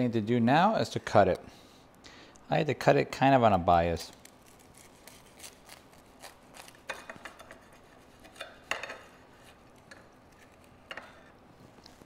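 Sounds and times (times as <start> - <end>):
toasted bread crunching: 4.1 - 7.4
knife scraping a plate: 6.2 - 11.3.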